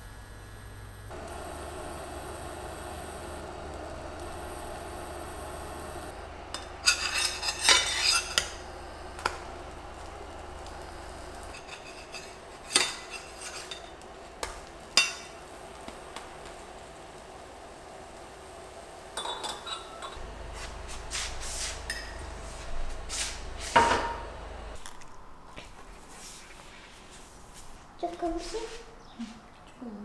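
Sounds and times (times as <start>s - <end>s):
metal spatula scraping a frying pan: 6.5s - 8.6s, 11.4s - 14.0s.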